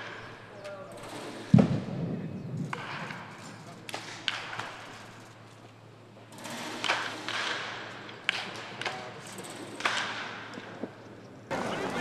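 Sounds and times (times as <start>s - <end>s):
bat cracking balls: 1.5s - 5.0s, 6.4s - 12.0s.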